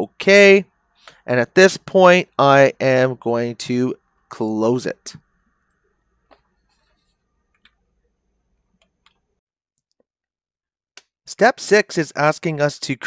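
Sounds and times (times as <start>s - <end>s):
computer mouse clicks: 8.8s - 9.3s.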